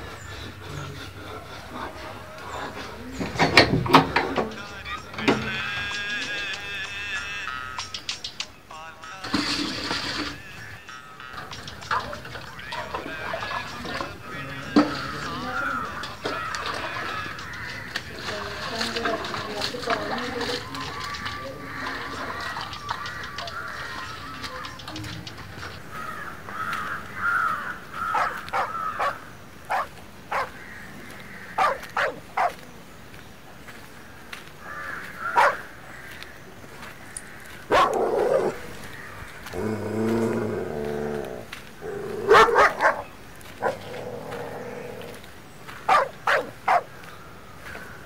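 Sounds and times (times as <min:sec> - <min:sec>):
dog barking: 0:28.1 - 0:30.5, 0:31.6 - 0:32.6, 0:35.4 - 0:35.6, 0:37.7 - 0:38.6, 0:42.1 - 0:43.9, 0:45.9 - 0:46.9.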